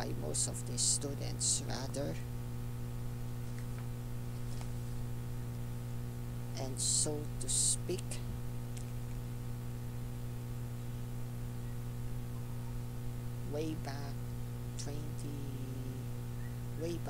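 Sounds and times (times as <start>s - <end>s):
soft spoken sounds: 0.0s - 2.3s, 6.5s - 8.3s, 13.4s - 14.2s, 14.8s - 16.1s, 16.8s - 17.0s
low electrical hum: 0.0s - 17.0s.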